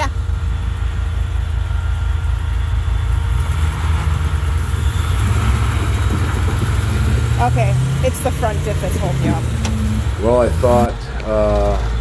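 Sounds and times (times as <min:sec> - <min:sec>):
truck engine revving: 0:00.0 - 0:12.0.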